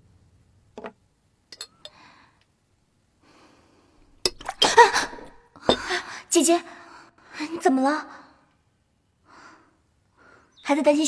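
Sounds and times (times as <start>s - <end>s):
teacup clinking against table: 4.2s - 5.9s.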